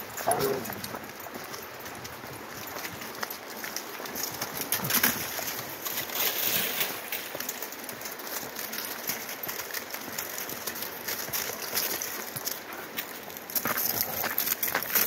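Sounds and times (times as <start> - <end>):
dog paws crunching on ice: 0.0 - 15.0.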